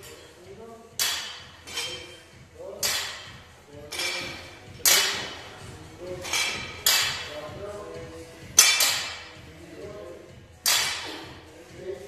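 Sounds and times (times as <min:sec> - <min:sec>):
barbells clanking on rubber floor: 0:01.0 - 0:02.2, 0:02.8 - 0:07.4, 0:08.5 - 0:09.4, 0:10.6 - 0:11.3.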